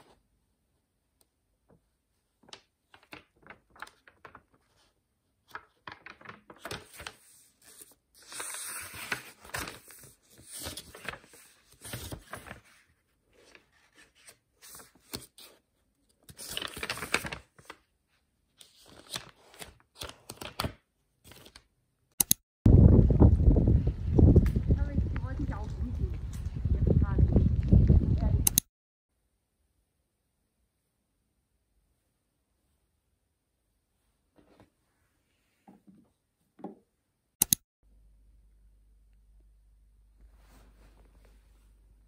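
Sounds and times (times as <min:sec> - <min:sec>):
paper pages turning: 0:02.4 - 0:17.9, 0:18.6 - 0:21.7.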